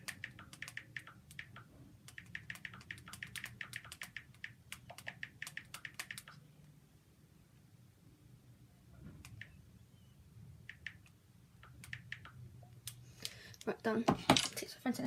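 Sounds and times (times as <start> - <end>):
touchscreen typing taps: 0.0 - 6.4, 9.2 - 9.6, 10.6 - 12.4.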